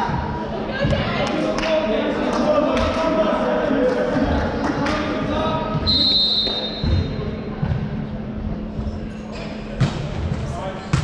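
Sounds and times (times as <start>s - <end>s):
sports hall noise: 0.0s - 11.0s
referee's whistle: 5.8s - 6.9s.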